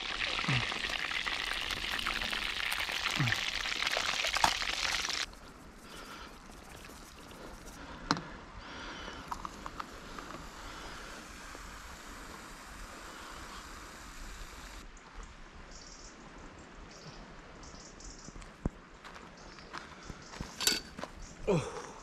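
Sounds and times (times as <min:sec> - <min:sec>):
cola pouring into a mug: 0:00.0 - 0:05.3, 0:06.3 - 0:07.8, 0:09.2 - 0:10.4.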